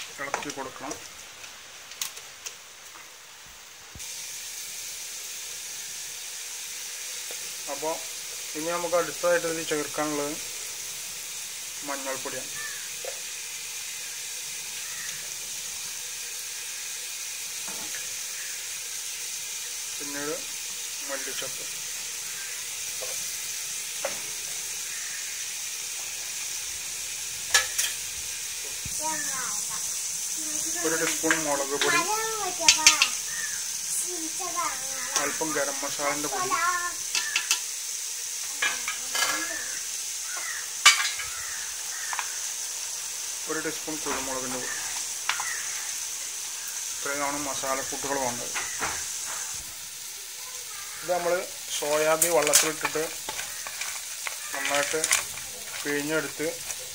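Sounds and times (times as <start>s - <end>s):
vegetables sizzling in a pot: 0.0s - 56.9s
metal clink against pot: 40.8s - 41.3s.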